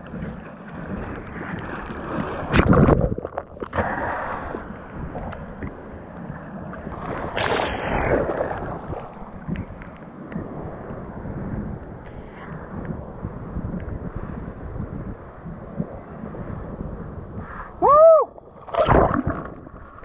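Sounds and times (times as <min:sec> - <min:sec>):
seawater splashing and sloshing: 0:00.0 - 0:05.6, 0:06.4 - 0:10.0, 0:18.6 - 0:20.0
wind buffeting microphone: 0:00.0 - 0:20.0.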